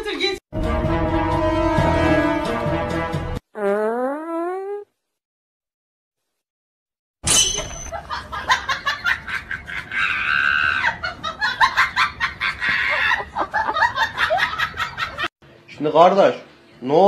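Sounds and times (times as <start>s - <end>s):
people laughing: 7.9s - 15.3s
people shrieking: 9.9s - 11.0s.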